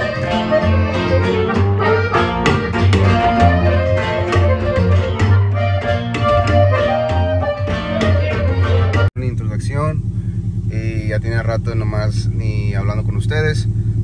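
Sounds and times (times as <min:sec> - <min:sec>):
strummed acoustic guitar: 0:00.0 - 0:09.1
accordion melody: 0:00.0 - 0:09.2
plucked upright bass: 0:00.0 - 0:09.2.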